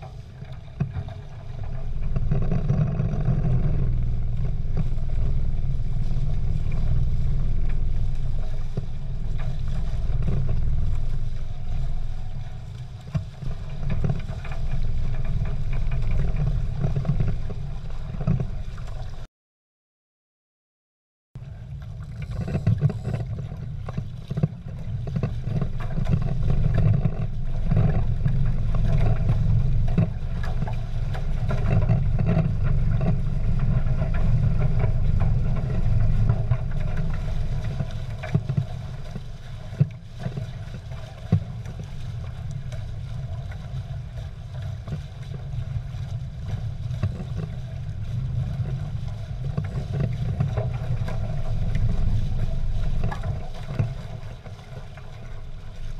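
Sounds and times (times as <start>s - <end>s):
hulls splashing through water: 21.6s - 55.9s.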